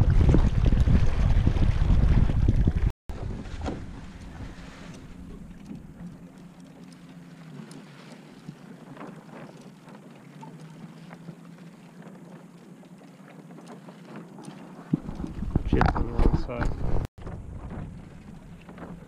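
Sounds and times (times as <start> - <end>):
wind on microphone: 0.0 - 5.9, 14.9 - 19.0
water rushing along hulls: 0.0 - 19.0.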